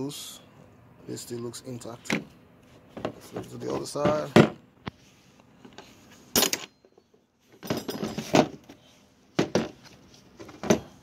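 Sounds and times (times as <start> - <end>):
metal clinks and knocks: 6.3 - 8.7.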